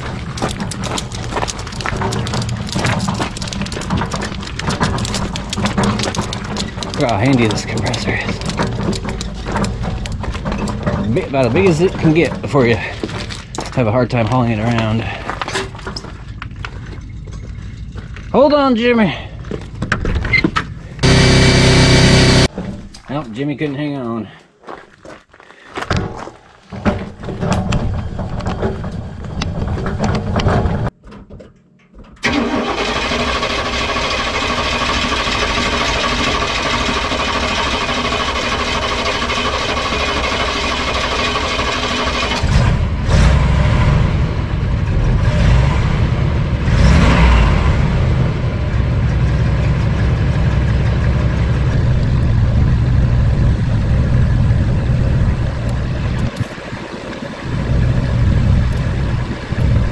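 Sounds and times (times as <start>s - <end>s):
clatter: 0.0s - 18.4s, 26.7s - 56.6s
air compressor motor droning: 21.0s - 22.5s.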